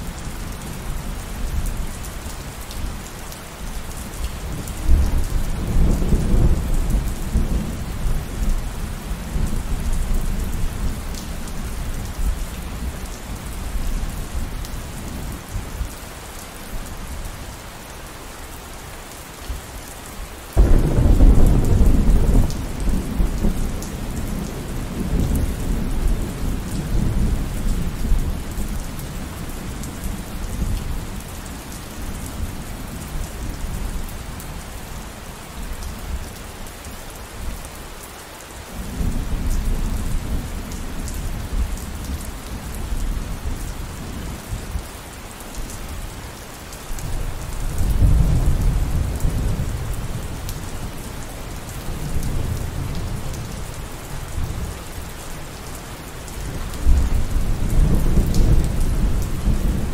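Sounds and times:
steady rain: 0.0 - 59.9
thunder rumbling: 20.6 - 27.9.

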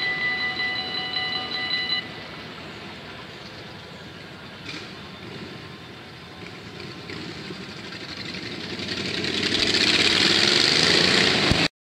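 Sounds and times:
road vehicle engines: 0.0 - 11.7.

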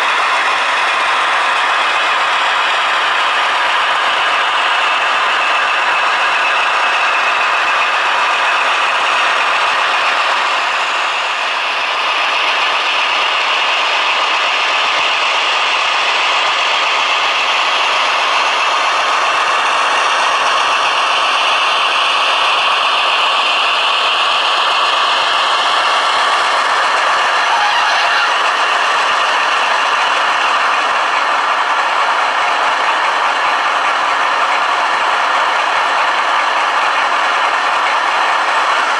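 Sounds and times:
model train wheels rattling: 11.9 - 38.9.

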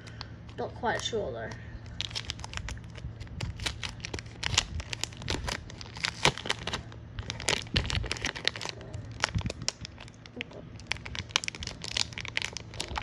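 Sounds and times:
plastic bag crinkling: 1.8 - 13.0.

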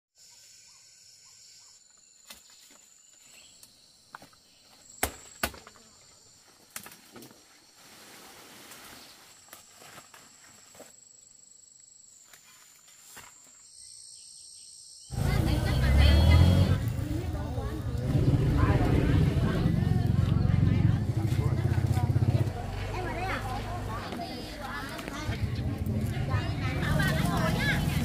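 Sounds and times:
rustling: 6.9 - 11.0.

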